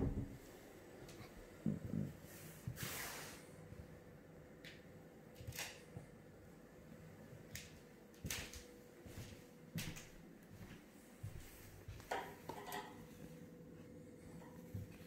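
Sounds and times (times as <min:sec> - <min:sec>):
window blind slats clattering: 0:12.1 - 0:13.1.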